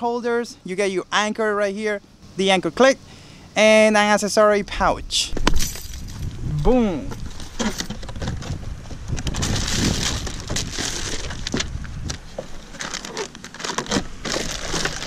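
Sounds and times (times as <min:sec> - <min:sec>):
plastic packaging crinkling: 0:09.3 - 0:15.0.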